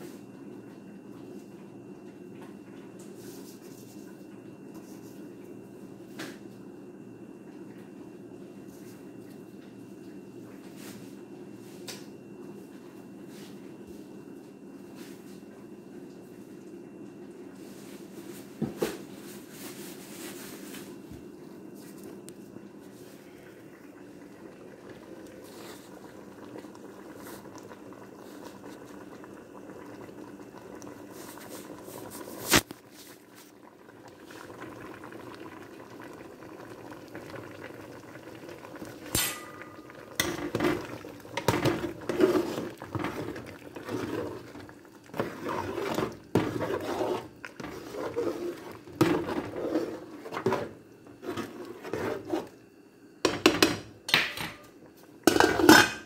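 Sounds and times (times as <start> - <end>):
stew bubbling in a pot: 20.9 - 56.0
metal ladle scraping a pot: 41.4 - 44.5, 45.2 - 52.5.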